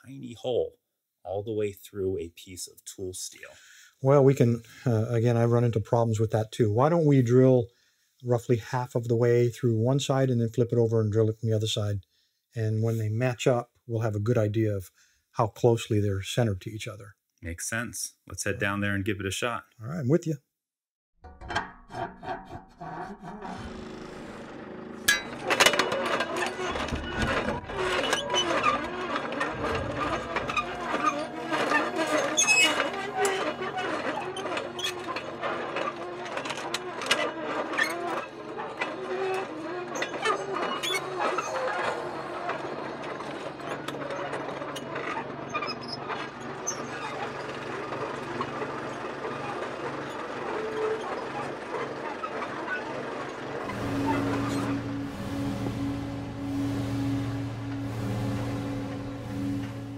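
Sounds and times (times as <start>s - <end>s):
belt sander grinding steel: 22.0s - 59.9s
metal lathe motor hum: 23.2s - 59.9s
drill ticking and scraping metal: 23.4s - 59.9s.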